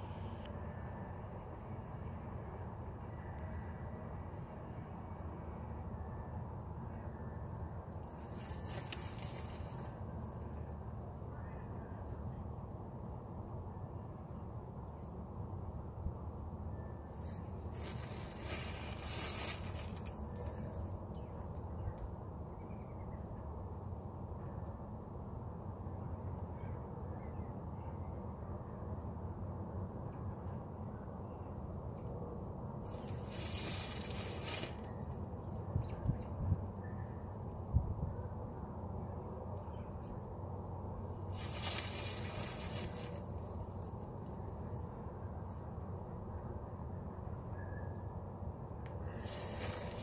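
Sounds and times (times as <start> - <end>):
low outdoor rumble: 0.0 - 50.0
steady low rumble: 30.1 - 50.0.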